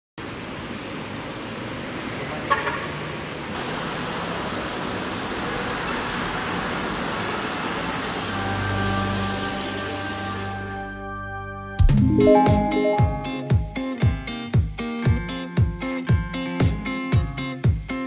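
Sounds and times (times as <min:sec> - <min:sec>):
tyres hissing on wet road: 0:00.2 - 0:10.9.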